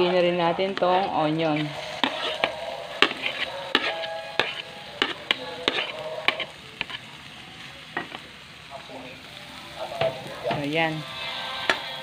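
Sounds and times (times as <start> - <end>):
oil sizzling: 0.0 - 12.0
knife scraping cutting board: 1.6 - 7.0.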